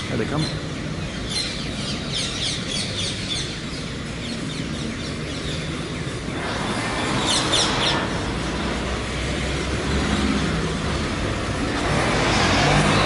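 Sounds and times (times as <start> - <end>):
city traffic rumble: 0.0 - 13.0
parakeets screeching: 0.3 - 9.8.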